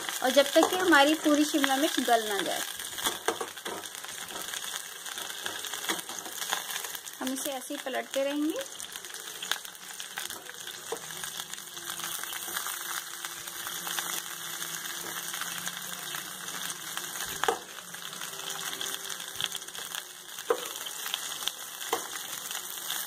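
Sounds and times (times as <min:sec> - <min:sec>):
metal spoon scraping a pan: 0:00.0 - 0:02.1, 0:02.8 - 0:07.0
peppers sizzling in oil: 0:00.0 - 0:23.0.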